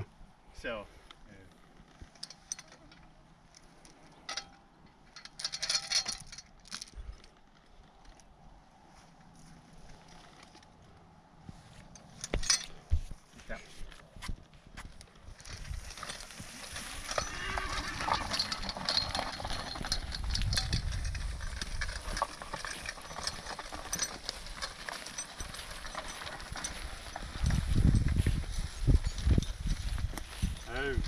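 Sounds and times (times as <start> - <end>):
harness clicking and rattling: 1.6 - 8.4, 9.2 - 13.2, 13.9 - 31.0
horse hoof steps on grass: 11.4 - 31.0.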